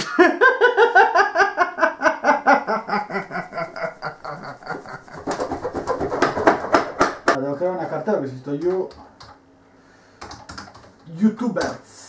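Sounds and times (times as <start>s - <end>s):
man laughing hard: 0.0s - 6.0s.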